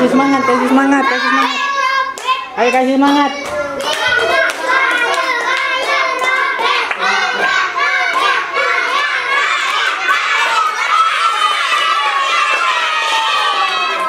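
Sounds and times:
children cheering and chanting: 0:00.0 - 0:14.0
hand claps: 0:01.4 - 0:07.5, 0:08.1 - 0:10.6.

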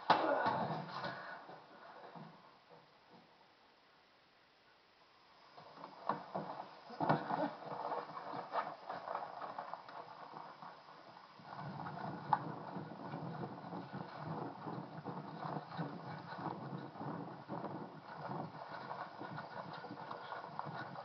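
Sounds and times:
rustling: 0:05.4 - 0:21.0.

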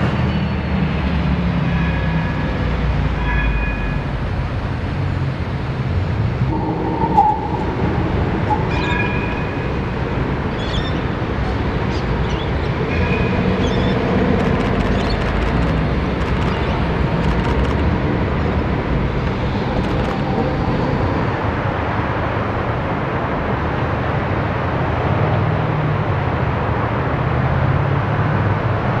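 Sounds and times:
rumble of passing vehicles: 0:00.0 - 0:29.0
low engine hum: 0:04.0 - 0:29.0.

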